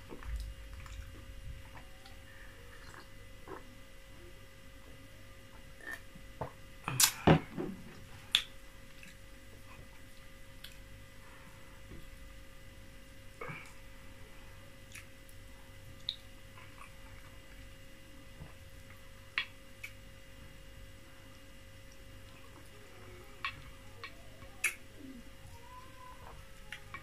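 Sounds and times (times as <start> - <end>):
faint steady hum: 0.0 - 27.0
mouth clicks and lip smacks: 8.3 - 9.2.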